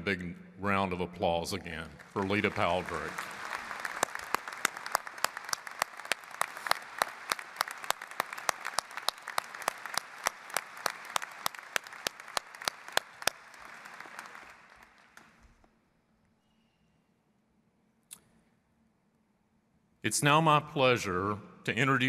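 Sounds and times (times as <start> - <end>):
audience applauding: 2.0 - 15.6
sharp hand claps: 2.0 - 15.6.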